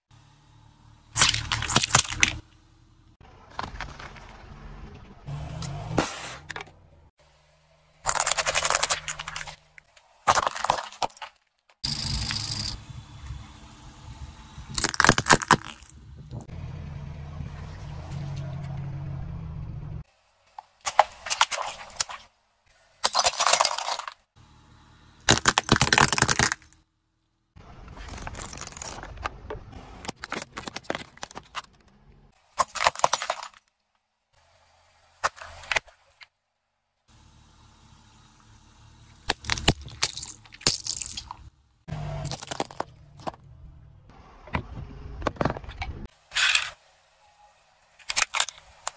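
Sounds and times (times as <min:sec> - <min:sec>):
car tyre crushing plastic toys: 0:01.1 - 0:02.6, 0:03.2 - 0:04.5, 0:08.0 - 0:12.8, 0:14.7 - 0:16.2, 0:23.0 - 0:24.3, 0:25.2 - 0:26.9, 0:27.7 - 0:34.0, 0:39.2 - 0:43.5, 0:48.0 - 0:48.9
low steady rumble: 0:11.8 - 0:20.4, 0:37.1 - 0:46.1.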